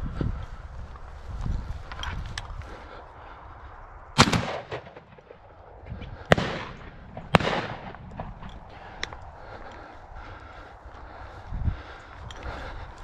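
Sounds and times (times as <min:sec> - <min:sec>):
shotgun firing: 0:04.2 - 0:05.4, 0:06.3 - 0:08.4.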